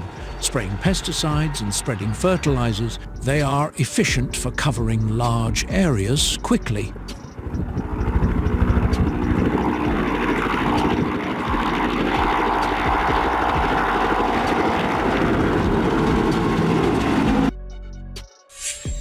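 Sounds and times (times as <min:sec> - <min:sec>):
helicopter rotor beat: 0:00.0 - 0:03.5, 0:04.2 - 0:17.5
turbine whine: 0:07.1 - 0:17.5.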